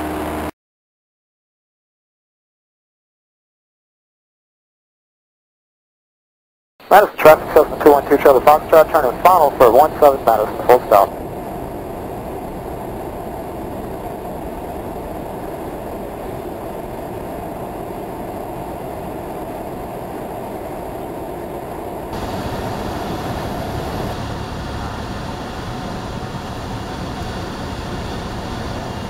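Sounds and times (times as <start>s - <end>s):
aircraft engine and propeller drone: 0.0s - 0.5s, 6.8s - 29.0s
rushing airflow: 6.9s - 29.0s.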